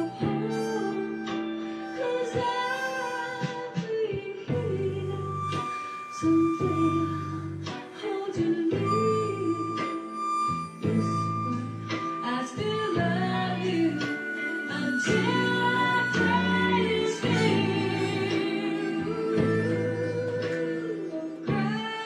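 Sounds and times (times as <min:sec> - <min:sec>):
person singing: 0:00.0 - 0:11.1, 0:12.1 - 0:22.0
harmonica: 0:00.0 - 0:22.0
slow soul ballad recording: 0:00.0 - 0:22.0
stepping bass line: 0:10.4 - 0:14.1.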